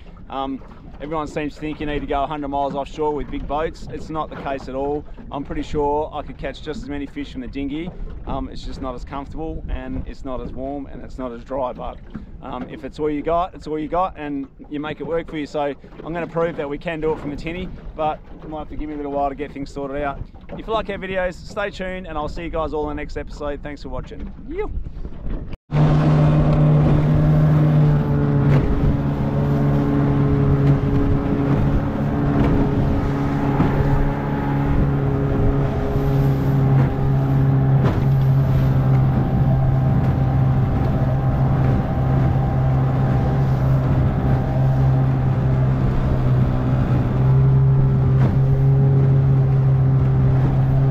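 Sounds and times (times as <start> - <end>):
outboard motor running: 0.0 - 8.6, 24.2 - 50.9
hull slapping water: 0.0 - 50.9.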